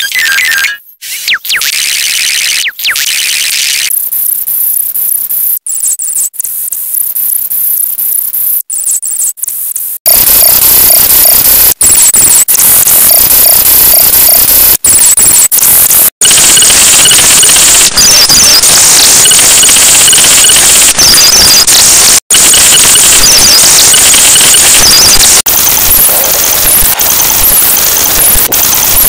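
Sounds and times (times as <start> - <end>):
distorted electronic tones: 0.0 - 5.2, 9.8 - 29.0
repeating beeps: 0.0 - 29.0
harsh noise: 10.1 - 29.0.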